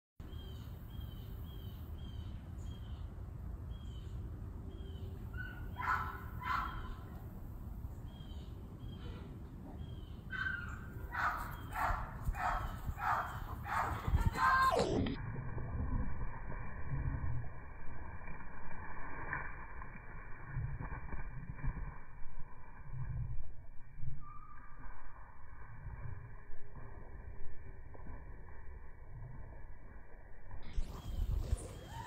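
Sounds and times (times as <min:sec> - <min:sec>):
low rumble: 0:12.2 - 0:31.9.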